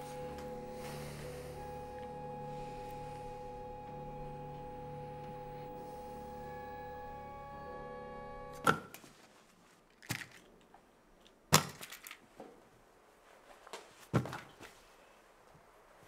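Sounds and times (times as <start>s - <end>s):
orchestral string music: 0.0s - 8.6s.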